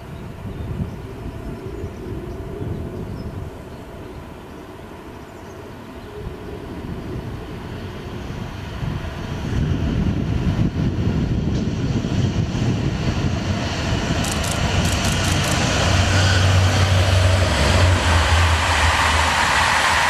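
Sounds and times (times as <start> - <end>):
diesel locomotive engine rumble: 0.0 - 20.0
train wheels rushing on rails: 13.8 - 20.0.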